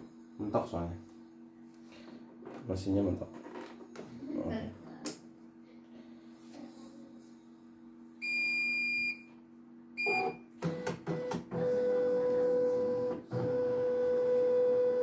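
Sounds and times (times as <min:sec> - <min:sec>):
machine beeps: 0:10.0 - 0:12.2.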